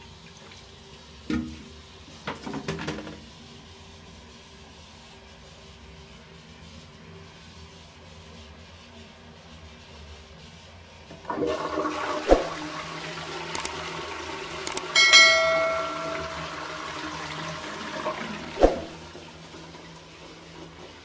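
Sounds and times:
rush of flushing water: 11.1s - 21.0s
toilet flush click: 11.1s - 21.0s
cistern knock: 15.0s - 16.5s
ringing clink: 15.0s - 16.6s.

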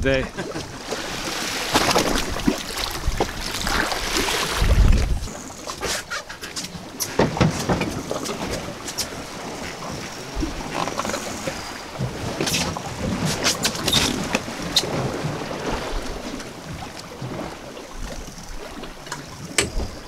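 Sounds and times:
sea water washing against boat: 0.0s - 20.0s
wind on microphone: 0.0s - 20.0s
sharp knocks or splashes: 1.6s - 5.2s, 7.0s - 9.7s.

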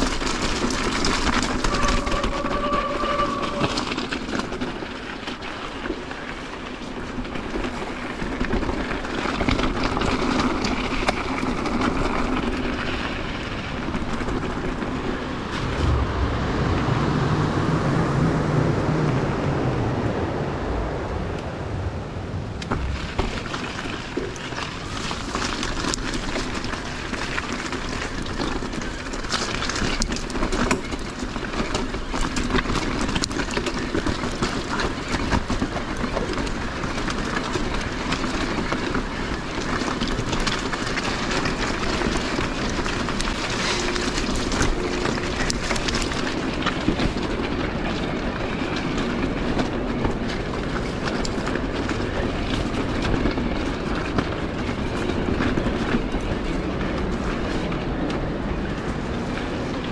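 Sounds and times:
bike rattling over rocky track: 0.0s - 17.0s, 22.6s - 59.9s
low hum: 14.4s - 25.4s.

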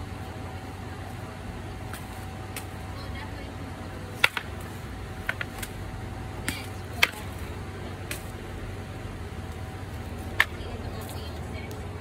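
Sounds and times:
distant traffic hum: 0.0s - 12.0s
wooden spear knocks and clicks: 4.2s - 4.6s.

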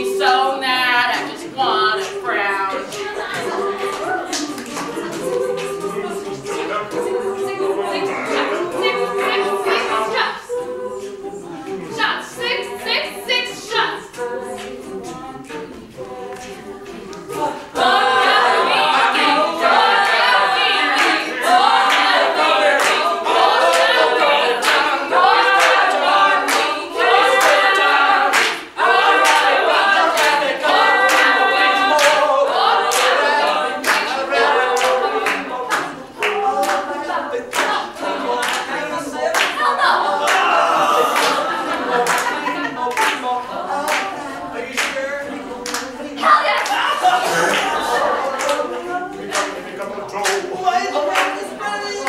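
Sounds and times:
group singing a cappella: 0.0s - 52.0s
hand claps: 2.9s - 5.9s, 22.8s - 23.0s, 25.6s - 26.7s, 27.4s - 28.6s, 29.2s - 30.4s, 32.0s - 32.2s, 32.9s - 33.2s, 33.8s - 34.1s, 34.8s - 36.8s, 37.5s - 37.8s, 42.0s - 43.2s, 45.6s - 45.9s, 49.3s - 49.6s, 50.2s - 50.5s, 51.1s - 51.4s.

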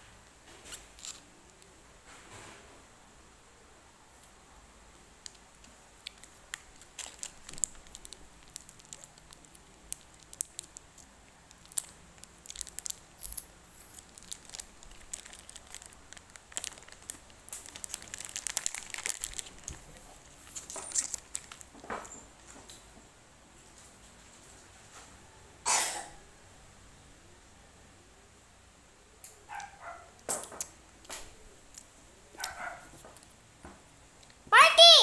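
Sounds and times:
snack wrapper crinkling: 0.7s - 1.3s, 5.2s - 21.8s.

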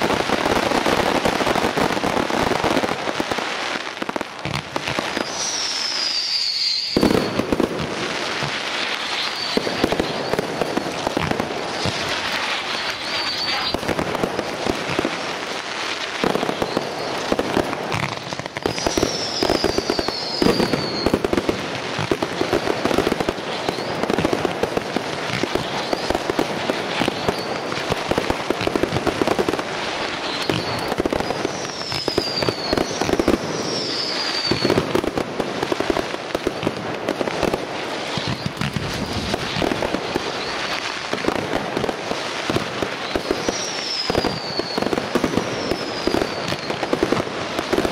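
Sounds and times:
dense firework crackling: 0.0s - 47.9s
falling whistles: 5.1s - 7.6s, 8.8s - 13.9s, 18.6s - 21.3s, 30.1s - 34.8s, 38.1s - 39.3s, 39.9s - 40.9s, 43.1s - 47.0s.

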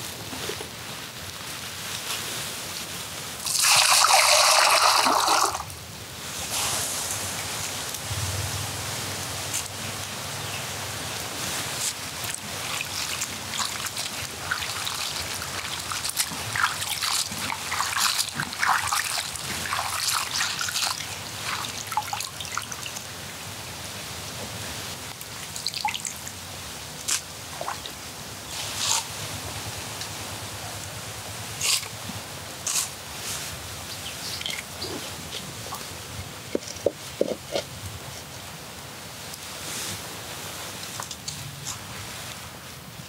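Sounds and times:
steady hiss: 0.0s - 43.0s
water dripping and trickling: 11.8s - 23.2s, 25.1s - 26.3s.

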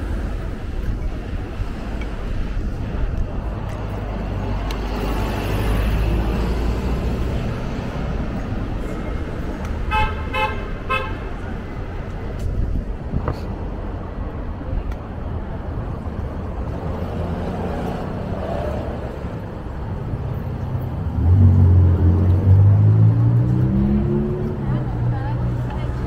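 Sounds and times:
traffic engine rumble: 0.0s - 26.0s
vehicle engine pulling away: 20.2s - 24.8s.

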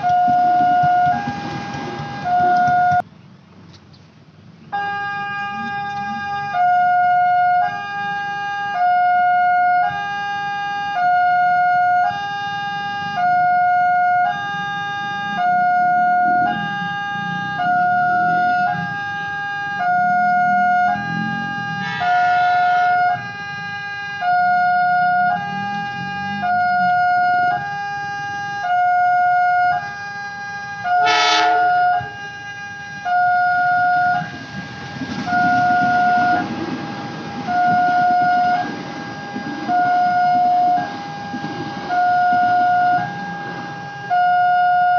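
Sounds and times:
train rumbling past: 0.0s - 3.5s, 15.0s - 27.7s, 30.8s - 44.9s
train horn blast: 20.8s - 27.0s, 30.8s - 32.3s
level-crossing alarm ding-dong: 21.3s - 23.4s.

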